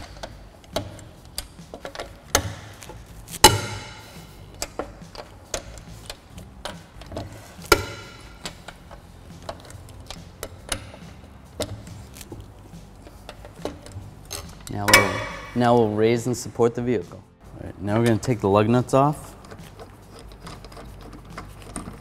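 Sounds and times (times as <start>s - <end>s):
socket clicking on nuts: 0.0s - 15.6s
lug nuts cracking loose: 0.0s - 15.7s, 19.2s - 22.0s.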